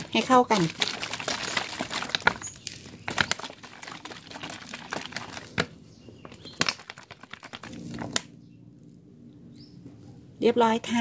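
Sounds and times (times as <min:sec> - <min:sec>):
liquid sloshing in shaken plastic bottle: 0:00.0 - 0:08.2
plastic bottle crackling and knocking: 0:00.0 - 0:08.3.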